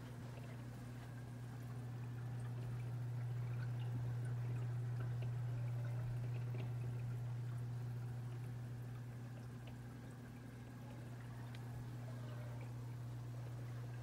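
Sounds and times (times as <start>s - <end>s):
aquarium filter hum: 0.0s - 14.0s
small ticks and splashes: 0.0s - 14.0s
water trickling and dripping: 0.0s - 14.0s.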